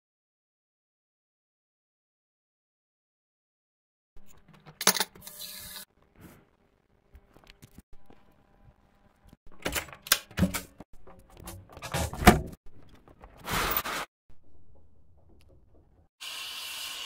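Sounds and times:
door knocks and clatter: 0:09.5 - 0:13.4.

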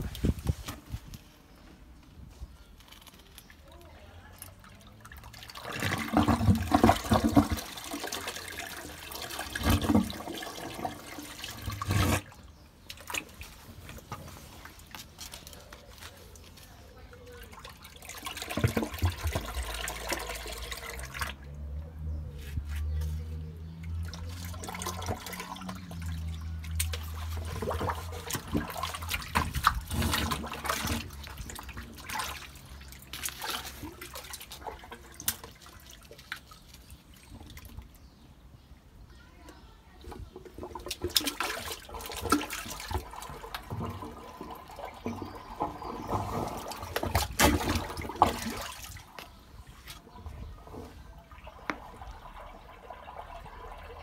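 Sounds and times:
sewage sloshing and gurgling: 0:02.9 - 0:38.3, 0:40.1 - 0:54.0
water draining away: 0:03.6 - 0:14.2, 0:17.1 - 0:22.2, 0:23.4 - 0:38.0, 0:40.0 - 0:54.0
splashes and knocks: 0:04.8 - 0:15.4, 0:17.4 - 0:21.5, 0:23.9 - 0:38.0, 0:40.1 - 0:54.0.

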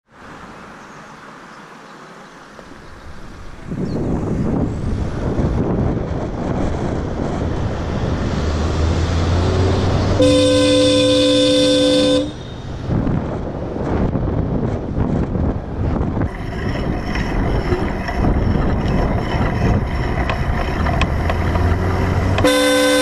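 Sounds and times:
wind on microphone: 0:02.7 - 0:23.0
dual-tone horn blast: 0:10.0 - 0:12.6, 0:22.2 - 0:23.0
tyre noise: 0:13.2 - 0:23.0.

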